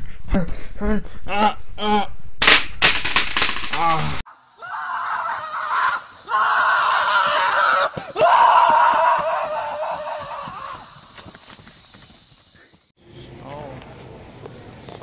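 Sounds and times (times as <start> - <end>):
long high screams: 4.3 - 10.9.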